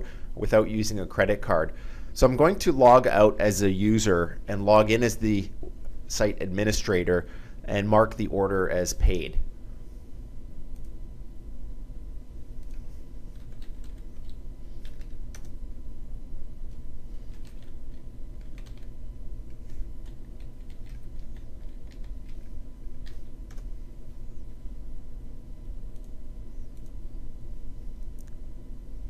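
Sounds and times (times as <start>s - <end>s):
steady low hum: 0.0s - 29.0s
keyboard typing: 12.6s - 15.6s, 17.3s - 18.9s, 19.5s - 23.7s.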